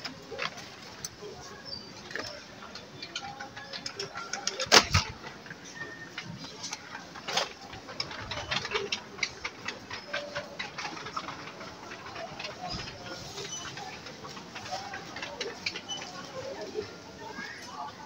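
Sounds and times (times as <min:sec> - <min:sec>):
clicking and clattering: 0:02.0 - 0:16.5.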